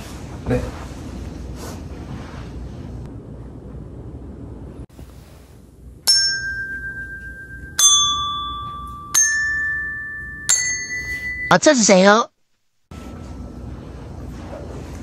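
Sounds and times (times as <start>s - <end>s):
touch bells ringing: 6.1s - 12.0s.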